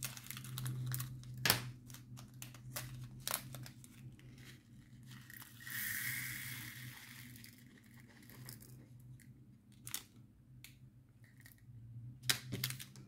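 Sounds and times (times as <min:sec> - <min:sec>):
plastic bag crinkling: 0:00.0 - 0:05.6.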